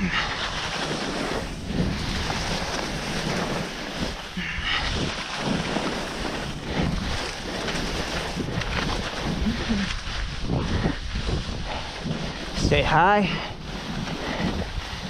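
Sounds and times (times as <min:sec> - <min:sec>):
skis carving on snow: 0:00.0 - 0:15.0
wind on microphone: 0:00.0 - 0:15.0.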